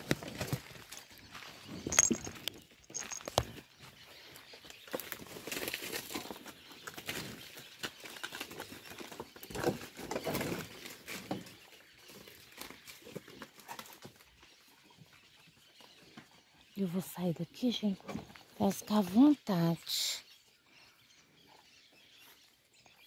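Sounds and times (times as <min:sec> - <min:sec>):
hoof steps: 0:00.0 - 0:05.2.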